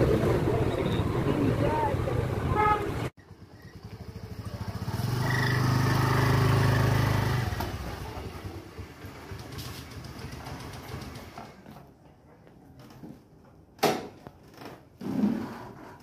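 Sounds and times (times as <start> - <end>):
motor scooter engine passing: 0.0 - 11.6.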